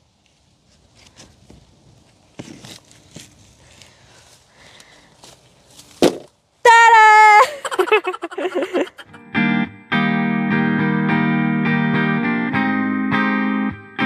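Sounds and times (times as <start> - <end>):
woman shouting: 6.6 - 8.3
strummed guitar music: 9.1 - 14.0.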